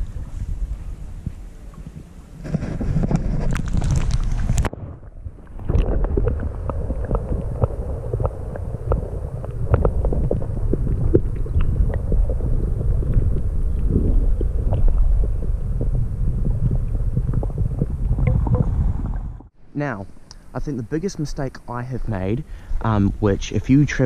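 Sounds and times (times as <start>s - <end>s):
water sloshing and splashing: 0.0s - 19.5s
muffled underwater rumble: 0.0s - 24.0s
small underwater clicks: 3.1s - 4.7s, 5.4s - 19.2s.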